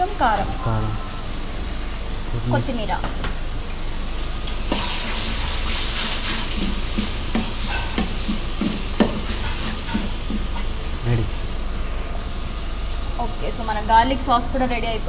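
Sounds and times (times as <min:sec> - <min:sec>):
sauce sizzling in a wok: 0:01.3 - 0:15.0
ladle knocking and scraping wok: 0:06.0 - 0:10.6.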